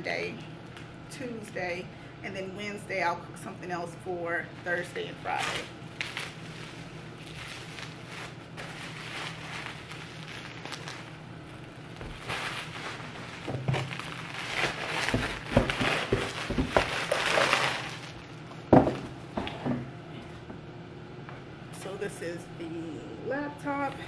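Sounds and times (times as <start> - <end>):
packaging rustling and crinkling: 5.3 - 18.3.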